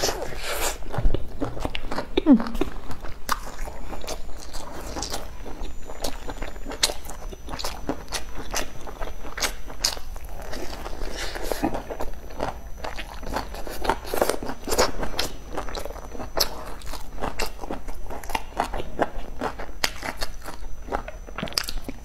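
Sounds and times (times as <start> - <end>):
person chewing food: 0.0 - 22.0.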